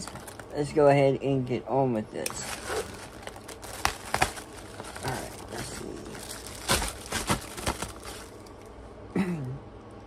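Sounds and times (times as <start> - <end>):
plastic mailer crinkling and tearing: 0.0 - 0.7, 2.2 - 8.5.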